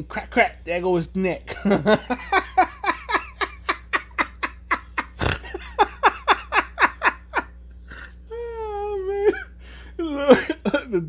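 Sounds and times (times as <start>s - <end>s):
man laughing hard: 1.5s - 7.5s, 8.4s - 11.0s.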